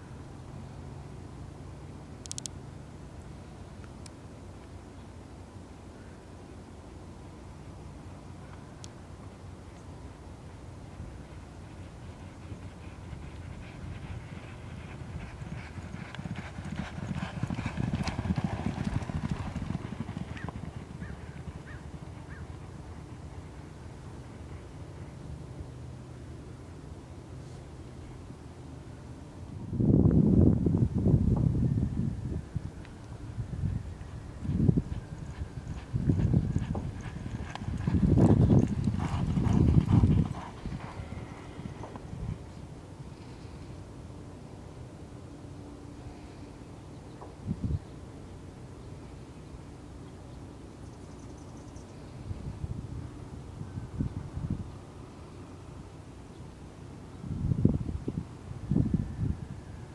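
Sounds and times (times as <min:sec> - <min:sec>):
horses galloping on dirt: 0:10.2 - 0:26.2, 0:33.7 - 0:43.0.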